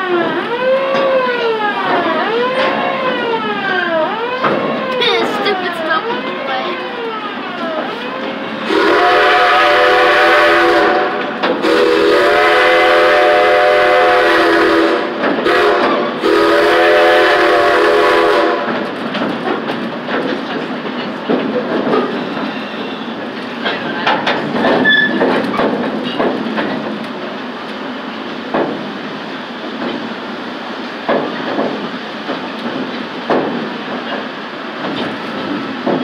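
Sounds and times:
train wheels clicking over rail joints: 0.0 - 36.0
steam locomotive whistle: 8.6 - 18.7.

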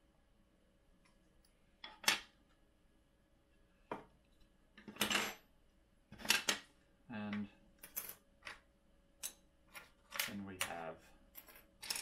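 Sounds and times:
plastic parts clattering: 9.8 - 12.0.

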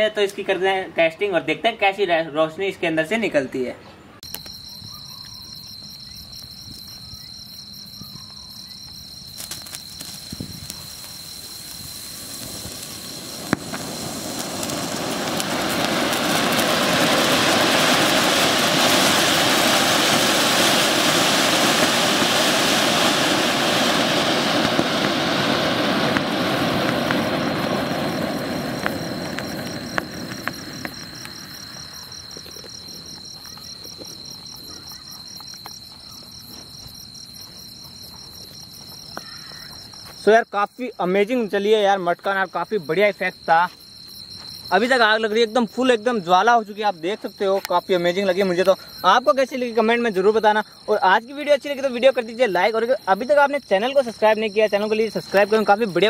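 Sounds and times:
crickets chirping: 4.1 - 56.0
firework crackles and pops: 4.2 - 56.0
firework spraying sparks hiss: 5.5 - 40.2.

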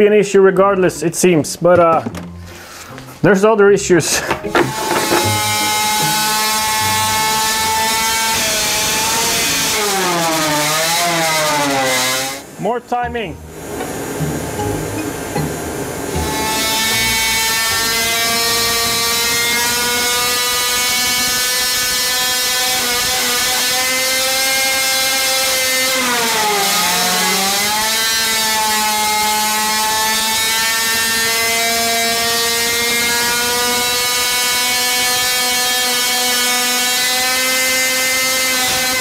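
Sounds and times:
two-stroke engine buzzing: 4.4 - 12.6, 13.4 - 39.0.

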